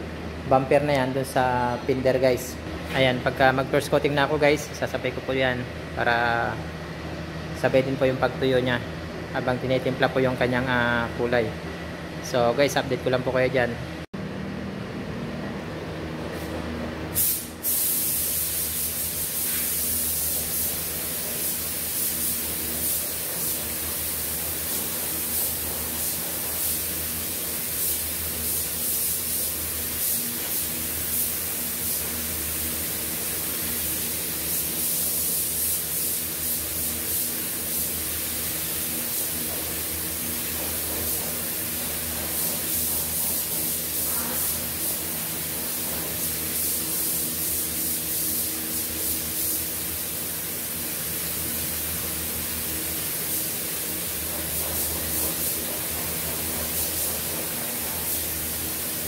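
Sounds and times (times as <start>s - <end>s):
spray gun hissing: 17.2s - 59.0s.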